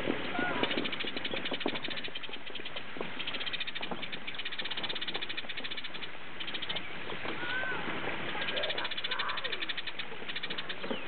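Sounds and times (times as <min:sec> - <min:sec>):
outdoor background noise: 0:00.0 - 0:11.0
animal pulsing trill: 0:08.3 - 0:11.0.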